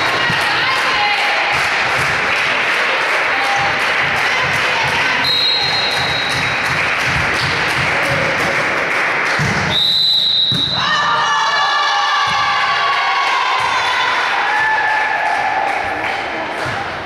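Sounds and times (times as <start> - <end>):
fans chanting and cheering: 0.0 - 9.8, 10.6 - 17.0
rapid rhythmic clapping: 0.0 - 9.8, 12.5 - 17.0
crowd noise: 0.0 - 17.0
referee whistle: 5.2 - 6.5, 9.7 - 11.0.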